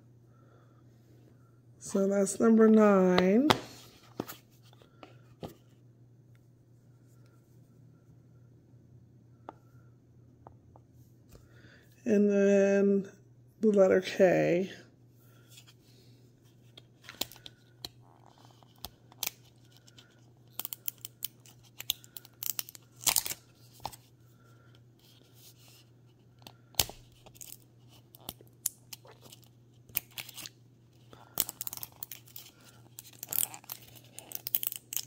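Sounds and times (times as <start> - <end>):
plastic wrap crackling and tearing: 17.2 - 23.9, 26.8 - 30.6, 31.2 - 35.0.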